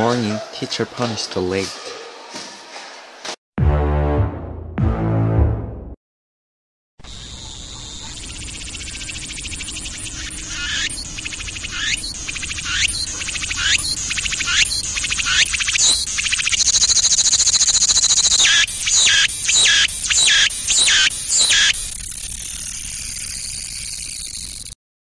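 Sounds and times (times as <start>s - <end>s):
cicada buzzing: 7.0s - 24.8s.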